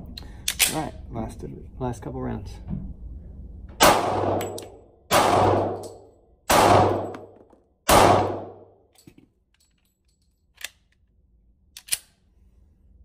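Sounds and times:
pistol shots echoing: 0:03.8 - 0:08.7.

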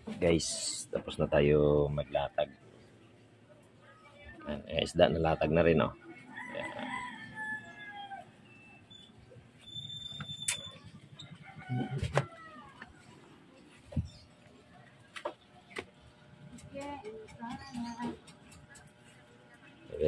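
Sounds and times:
rooster crowing: 0:06.2 - 0:08.5, 0:11.4 - 0:13.1.

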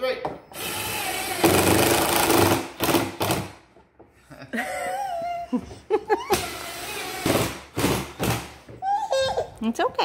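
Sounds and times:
power drill driving screw: 0:00.5 - 0:03.5, 0:06.3 - 0:08.4
toddler whimpering and crying: 0:08.8 - 0:09.6.

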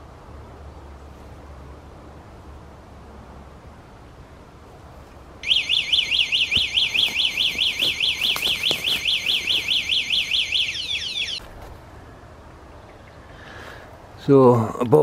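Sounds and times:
bicycle alarm warbling siren: 0:05.4 - 0:11.4.

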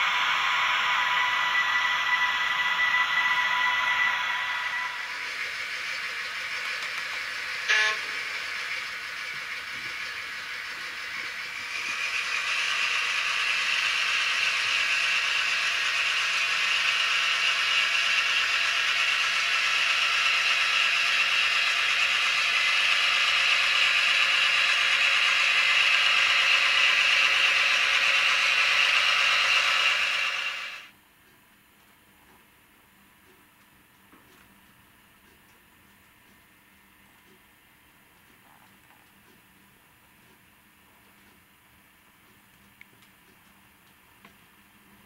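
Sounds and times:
model locomotive rattling: 0:00.0 - 0:30.9.

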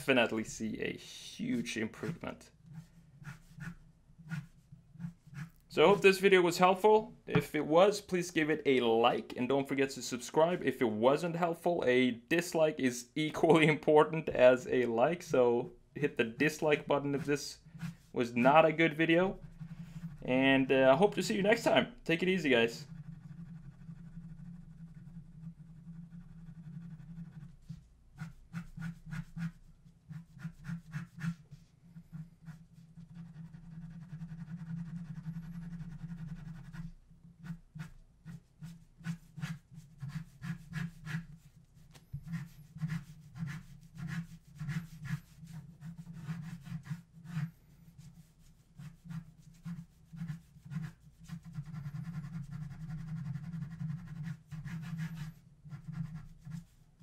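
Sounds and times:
pen scratching on paper: 0:01.6 - 0:06.2, 0:16.5 - 0:20.5, 0:22.2 - 0:57.0.

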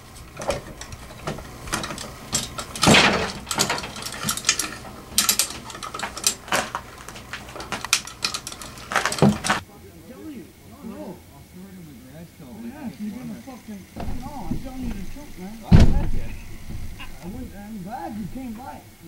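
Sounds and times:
metal clank: 0:00.0 - 0:09.6, 0:14.0 - 0:18.9
ratchet hoist clicking: 0:00.0 - 0:09.6.

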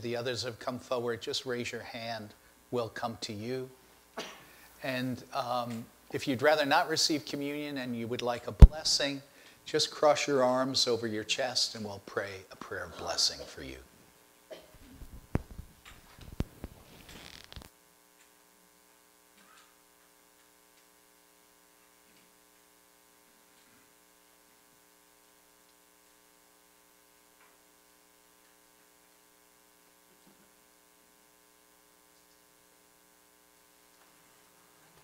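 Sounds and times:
electrical mains hum: 0:00.0 - 0:35.0.

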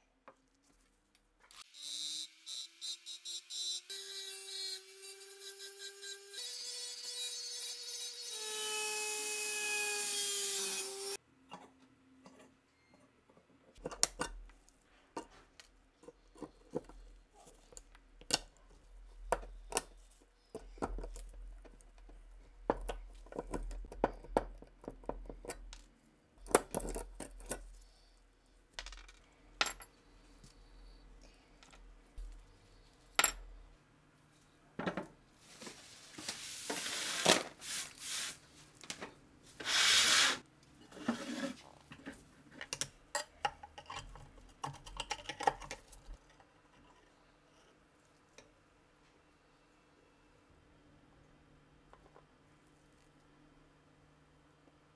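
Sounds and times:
rotary tool grinding steel: 0:01.8 - 0:11.2
loud rubbing hiss: 0:39.6 - 0:40.4.

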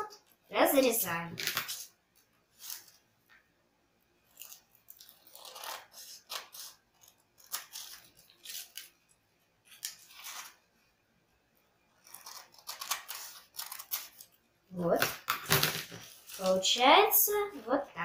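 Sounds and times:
scissors cutting paper: 0:04.4 - 0:08.9, 0:12.0 - 0:14.3.

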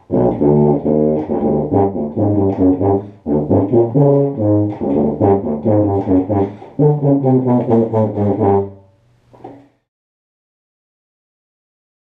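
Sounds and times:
tuba playing short notes: 0:00.0 - 0:09.1.

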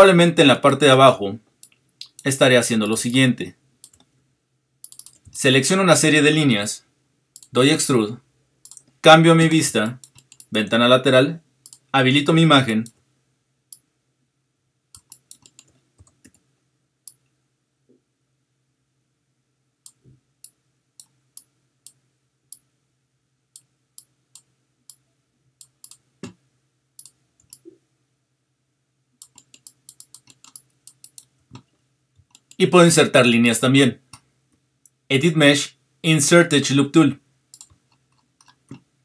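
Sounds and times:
faint low hum: 0:00.0 - 0:39.0
computer mouse clicks: 0:01.6 - 0:02.3, 0:03.8 - 0:04.1, 0:04.8 - 0:05.4, 0:07.4 - 0:07.6, 0:08.6 - 0:09.0, 0:10.0 - 0:10.6, 0:11.6 - 0:11.9, 0:14.9 - 0:16.4, 0:17.0 - 0:17.3, 0:19.8 - 0:22.7, 0:25.6 - 0:26.4, 0:27.0 - 0:27.8, 0:29.2 - 0:32.6, 0:37.5 - 0:38.8.

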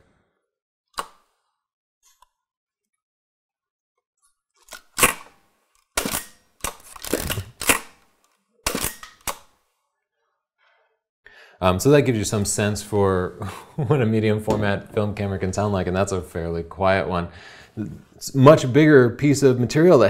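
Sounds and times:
camera shutter clacking: 0:06.0 - 0:08.0, 0:08.7 - 0:09.5.

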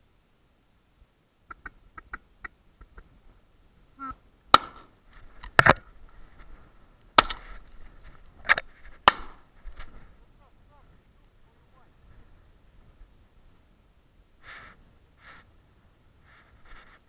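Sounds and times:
shotgun shots: 0:04.5 - 0:04.9, 0:07.2 - 0:07.4, 0:09.0 - 0:09.4.

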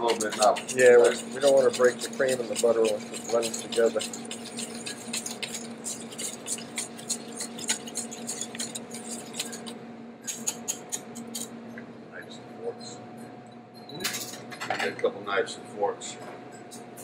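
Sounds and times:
whisk clinking against metal bowl: 0:00.0 - 0:11.5
steady hum: 0:00.0 - 0:17.0.

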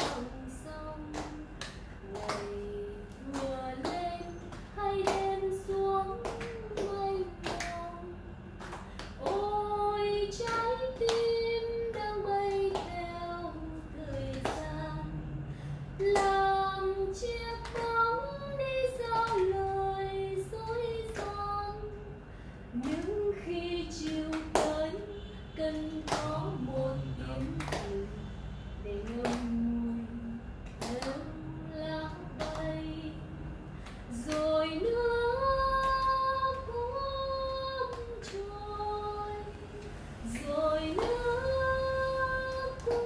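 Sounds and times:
people clapping: 0:00.0 - 0:08.0, 0:08.6 - 0:15.3, 0:16.0 - 0:21.8, 0:22.8 - 0:25.0, 0:25.6 - 0:28.3, 0:28.9 - 0:29.8, 0:30.6 - 0:33.2, 0:33.8 - 0:38.7, 0:39.3 - 0:43.0.

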